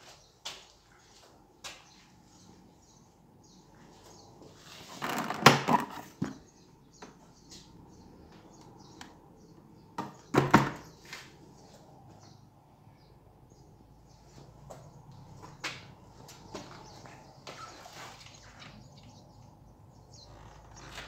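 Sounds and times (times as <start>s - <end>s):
rustle: 17.0s - 19.2s.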